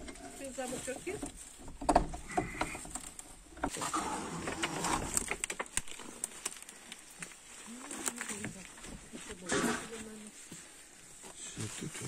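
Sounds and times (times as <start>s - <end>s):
wooden door scraping: 0.0s - 5.7s
footsteps: 5.9s - 12.0s.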